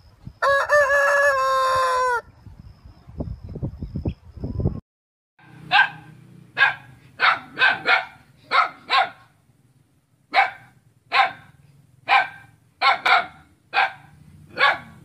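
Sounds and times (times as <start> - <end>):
dog barking: 5.4 - 9.4, 10.3 - 15.0.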